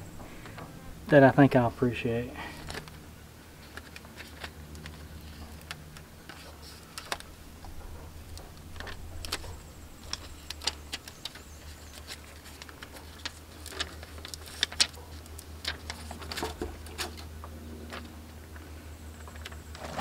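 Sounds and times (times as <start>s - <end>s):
low steady hum: 0.0s - 20.0s
paper peeling off decal crackling: 3.6s - 17.2s.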